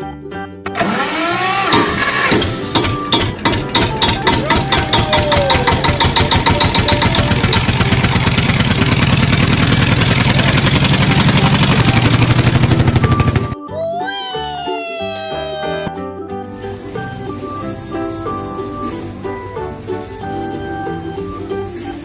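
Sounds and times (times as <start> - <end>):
engine starting and revving: 0.7 - 13.6.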